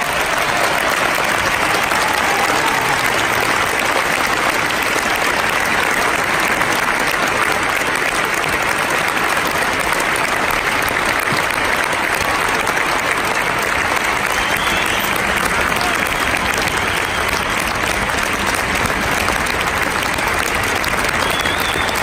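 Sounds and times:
arena audience applauding: 0:00.0 - 0:22.0.

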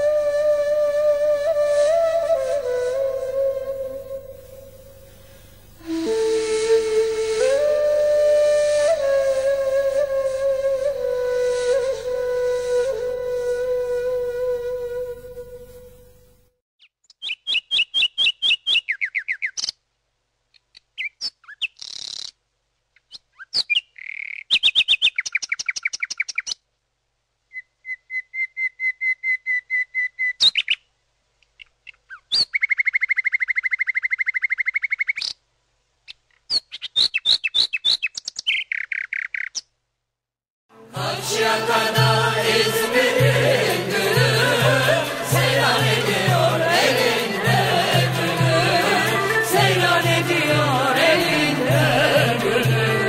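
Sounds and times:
nightingale singing: 0:16.8 - 0:19.8, 0:20.6 - 0:26.6, 0:27.5 - 0:35.4, 0:36.1 - 0:39.7.

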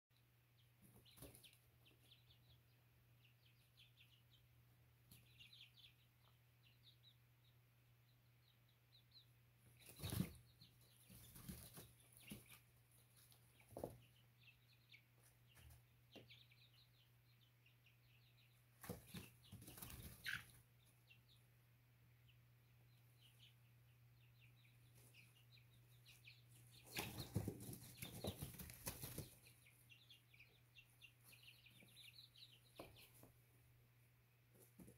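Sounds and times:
chicks peeping: 0:00.2 - 0:34.9
wings flapping and scuffling: 0:00.8 - 0:02.1, 0:09.7 - 0:14.2, 0:18.7 - 0:20.6, 0:26.5 - 0:29.7, 0:34.5 - 0:34.9.

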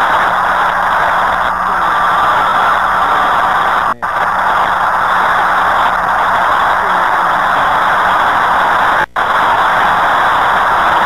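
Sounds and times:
shortwave radio static hiss: 0:00.0 - 0:11.0.

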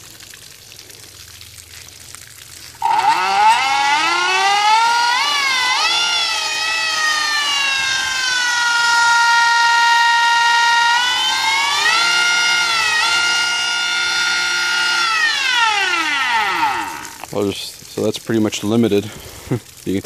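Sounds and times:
electric motor whine: 0:02.8 - 0:17.3.

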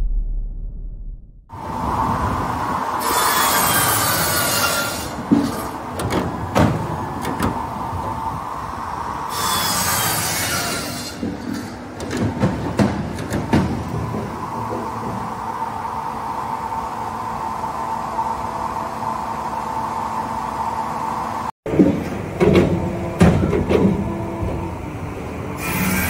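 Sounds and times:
circular saw cutting log: 0:03.0 - 0:05.9, 0:09.2 - 0:11.3, 0:25.6 - 0:26.0.

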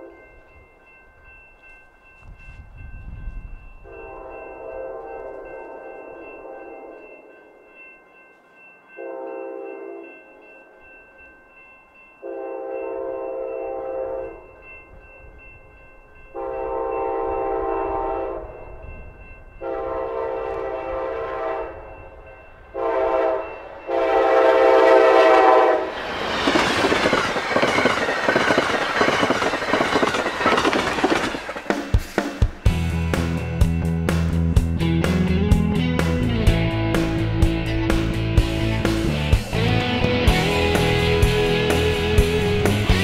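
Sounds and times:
train passing with wheel and rail noise: 0:00.0 - 0:43.0
locomotive horn: 0:03.9 - 0:05.9, 0:16.4 - 0:18.6, 0:19.6 - 0:22.0, 0:22.7 - 0:26.0.

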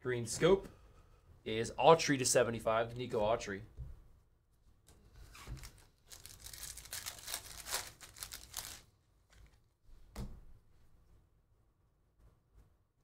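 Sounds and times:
foil wrapper tearing and crinkling: 0:05.5 - 0:09.6.

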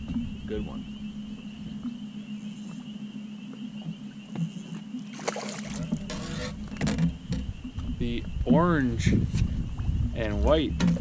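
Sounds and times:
boat hum with high whine: 0:00.0 - 0:11.0
water splashes and knocks: 0:05.1 - 0:08.7, 0:09.8 - 0:11.0.

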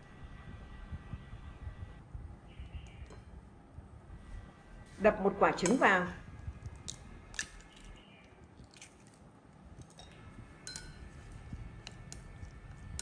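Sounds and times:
egg cracking: 0:06.6 - 0:13.0.

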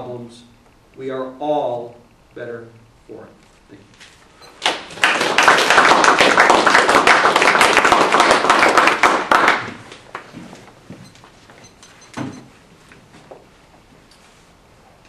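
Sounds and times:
audience applauding: 0:04.6 - 0:10.3.

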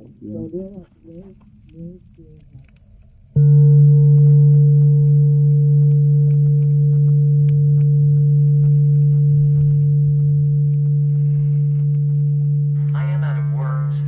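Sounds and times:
deep ringing tone: 0:03.3 - 0:14.0.

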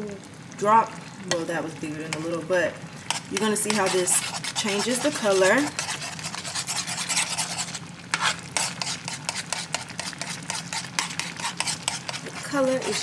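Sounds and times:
spoon scraping a pan: 0:03.0 - 0:13.0.

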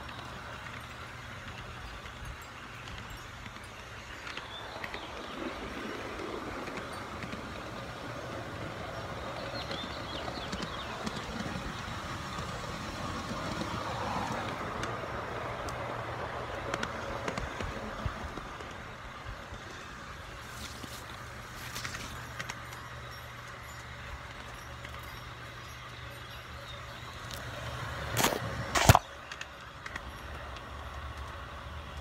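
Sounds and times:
model train rolling hum: 0:00.0 - 0:32.0.

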